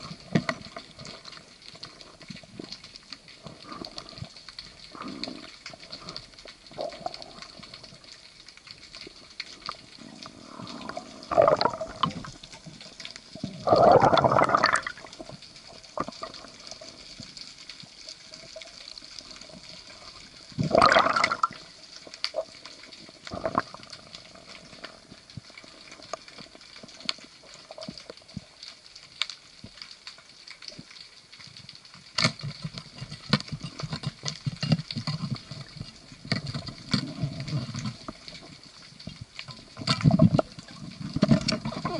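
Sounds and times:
underwater clicks: 0.0 - 41.9
underwater hiss: 10.0 - 12.2.

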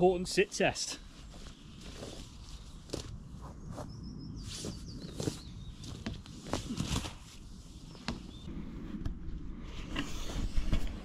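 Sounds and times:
hammock fabric rustling: 1.0 - 8.5.

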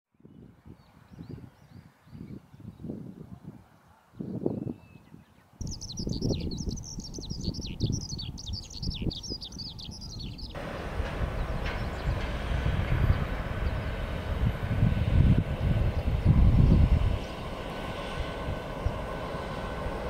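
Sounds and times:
songbird chirping: 3.8 - 14.1
jet airliner engine noise: 5.6 - 20.0
low rumble: 10.4 - 20.0.

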